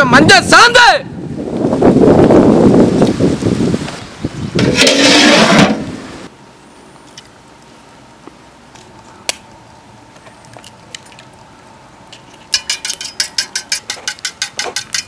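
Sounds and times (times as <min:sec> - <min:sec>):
stone scraping on stone: 0:04.6 - 0:06.0.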